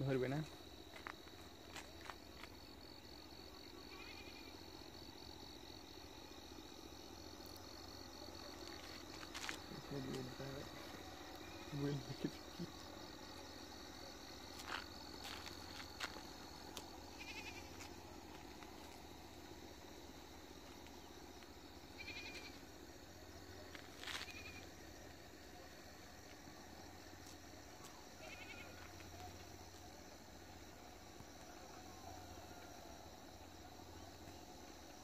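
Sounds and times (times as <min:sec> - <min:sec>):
insects droning: 0:00.0 - 0:35.0
short animal calls: 0:03.8 - 0:04.5, 0:17.1 - 0:17.8, 0:22.0 - 0:22.6, 0:28.2 - 0:28.8.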